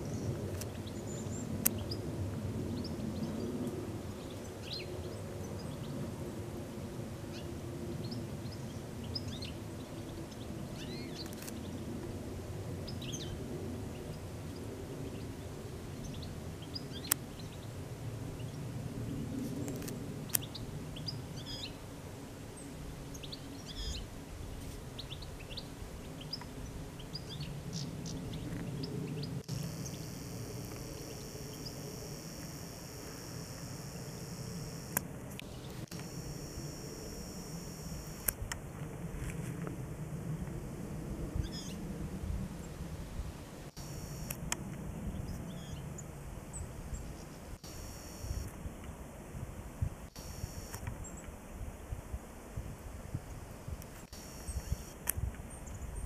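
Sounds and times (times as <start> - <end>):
small birds chirping: 22.6 - 24.0, 25.0 - 38.3, 54.1 - 56.0
sharp clicks: 29.4 - 38.6, 43.8 - 44.6, 47.6 - 48.5, 50.1 - 51.0.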